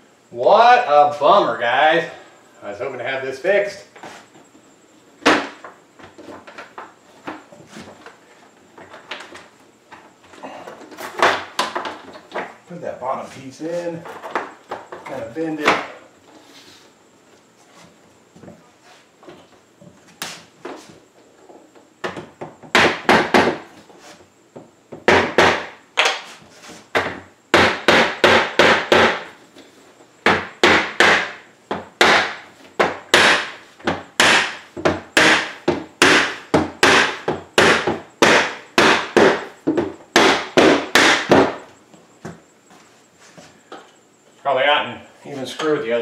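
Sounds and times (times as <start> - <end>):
hammer knocking on wooden block: 27.0 - 29.2, 30.2 - 41.6.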